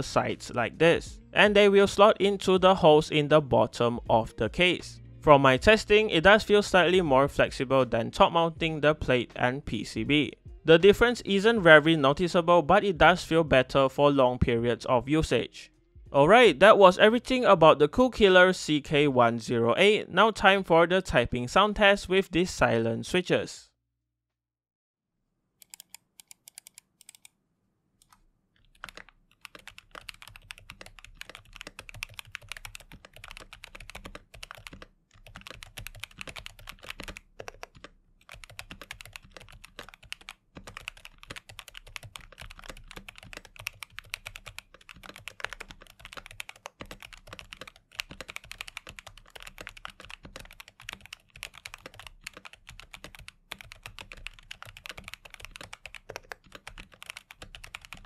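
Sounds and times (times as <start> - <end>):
typing on keyboard: 25.6 - 27.3, 28.0 - 58.0.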